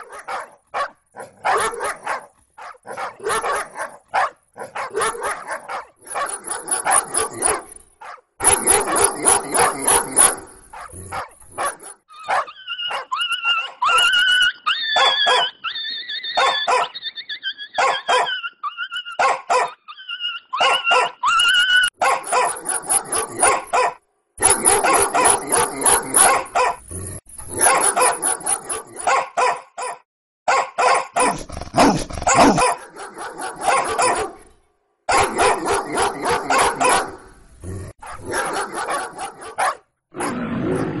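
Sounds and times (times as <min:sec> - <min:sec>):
dogs barking and snarling: 0:00.0 - 0:15.6, 0:16.4 - 0:17.0, 0:17.8 - 0:41.0
dogs whining and yelping: 0:04.8 - 0:30.0.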